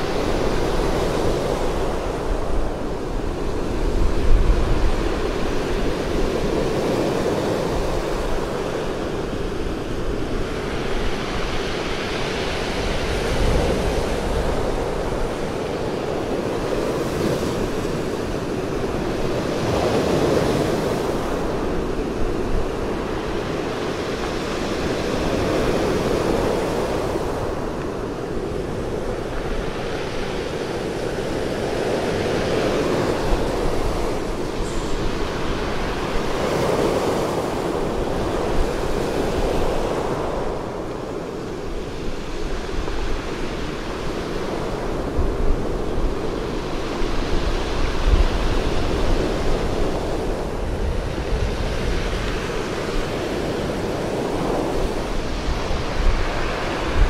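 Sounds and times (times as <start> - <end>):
surf washing up pebble beach: 0.0 - 57.0.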